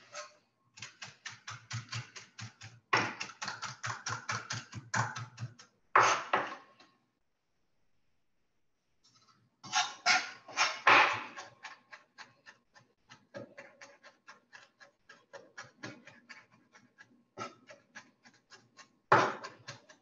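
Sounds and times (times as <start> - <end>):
knife chopping on cutting board: 1.6 - 6.6, 10.2 - 20.0.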